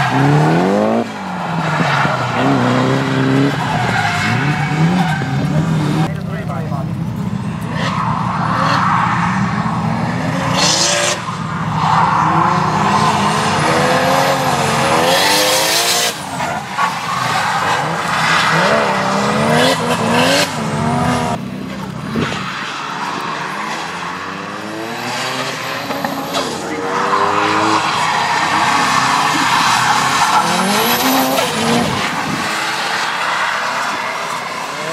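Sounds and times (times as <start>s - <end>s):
car engine revving: 0.0s - 34.9s
tyre noise on wet track: 0.0s - 34.9s.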